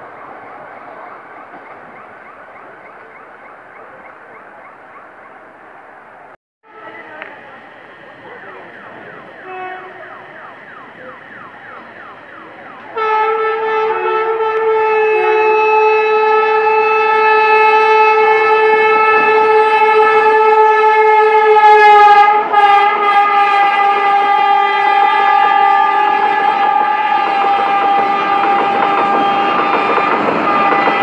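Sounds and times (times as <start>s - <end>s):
train running through station: 0.0s - 31.0s
locomotive horn blast: 8.3s - 31.0s.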